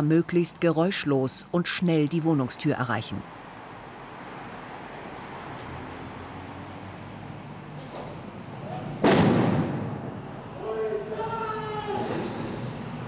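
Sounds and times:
stun grenade bang: 9.0s - 10.1s.

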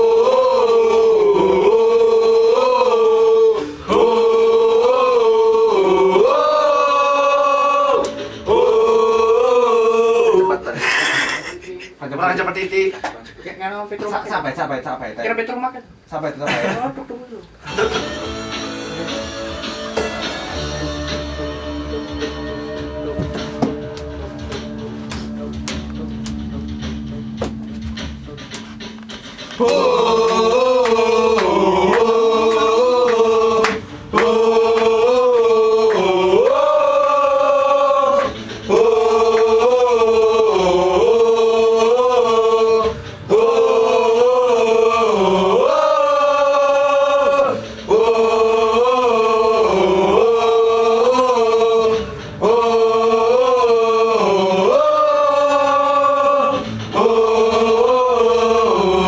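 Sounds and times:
group of men singing in unison: 0.0s - 10.7s, 29.6s - 59.0s.

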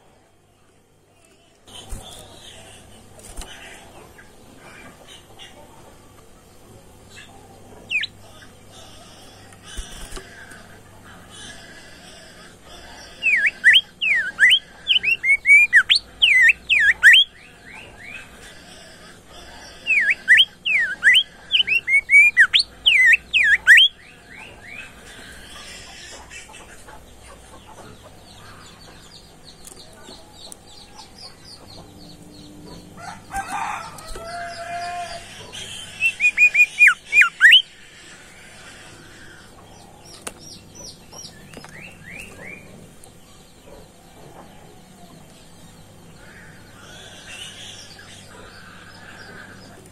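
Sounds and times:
songbird whistled song: 7.9s - 8.1s, 13.2s - 18.2s, 19.8s - 24.9s, 35.8s - 37.7s.

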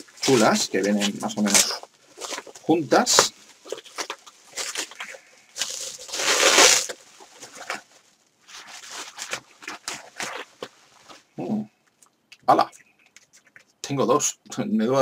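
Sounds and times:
packaging rustling and crinkling: 0.0s - 11.3s.

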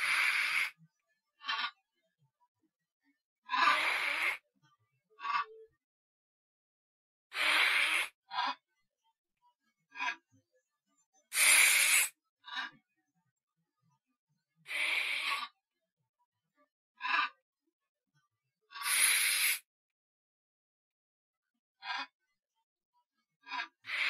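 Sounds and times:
breathy puffs and hisses: 0.0s - 0.8s, 3.6s - 4.4s, 7.3s - 8.2s, 11.3s - 12.1s, 18.8s - 19.6s.

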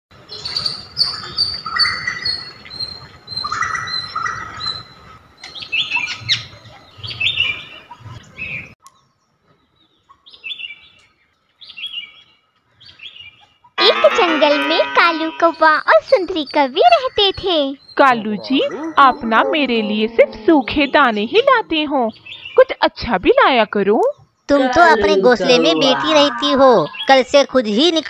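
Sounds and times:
songbirds chirping: 0.2s - 28.0s
low background hum: 13.8s - 28.0s.

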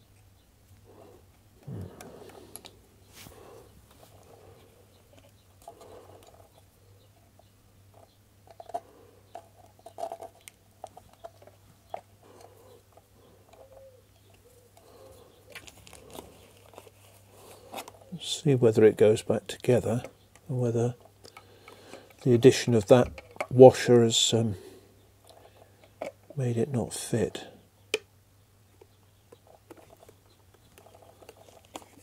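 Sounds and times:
faint low hum: 0.0s - 32.0s
plastic parts clicking and rubbing: 0.1s - 24.3s, 25.2s - 26.7s, 28.7s - 32.0s
screwdriver being handled: 29.4s - 32.0s.

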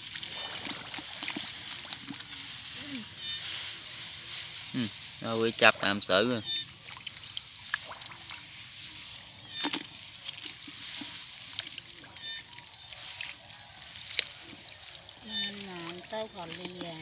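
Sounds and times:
hands sloshing through muddy water: 0.0s - 5.6s, 6.7s - 17.0s
sharp water splashes: 0.0s - 12.6s.

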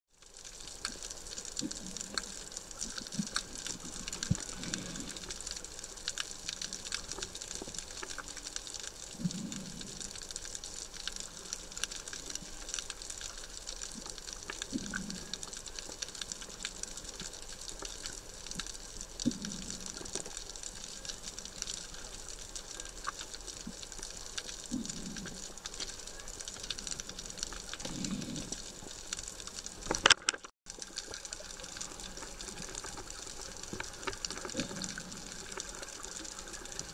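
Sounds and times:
crackle of fine clicks: 0.1s - 36.9s
underwater hiss: 1.0s - 8.2s, 26.9s - 29.0s.

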